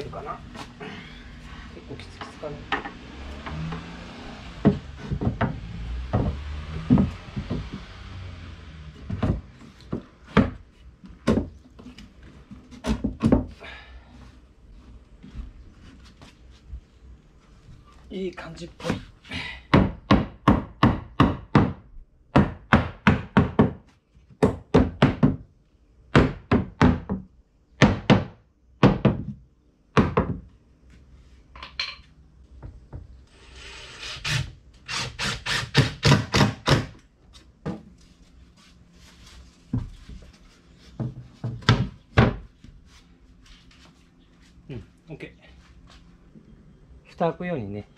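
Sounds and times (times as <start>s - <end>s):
hammer knocking on wood: 4.6s - 7.8s, 9.1s - 10.6s, 19.7s - 21.8s, 22.4s - 23.8s, 24.4s - 25.4s, 26.2s - 29.4s, 41.0s - 42.5s.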